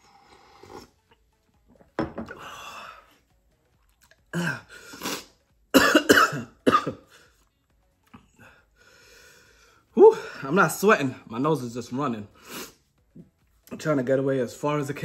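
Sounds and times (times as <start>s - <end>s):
man coughing: 5.7s - 7.2s.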